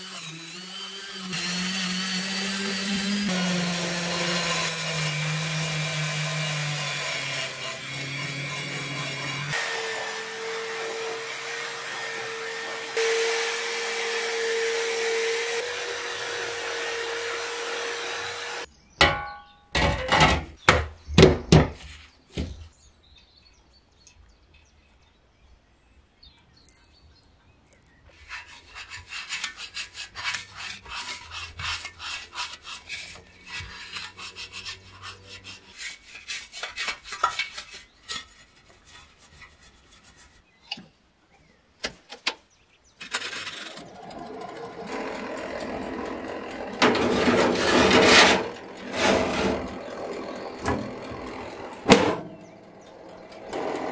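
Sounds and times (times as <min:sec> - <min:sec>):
drill wire brush grinding metal: 0:00.0 - 0:18.7, 0:28.2 - 0:37.8, 0:43.1 - 0:53.9
bristle brush scrubbing metal: 0:28.2 - 0:40.6, 0:46.8 - 0:51.1.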